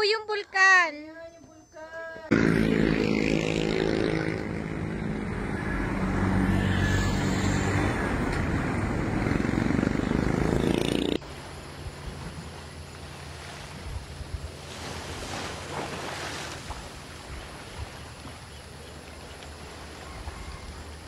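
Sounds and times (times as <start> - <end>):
engine running: 2.3 - 14.7.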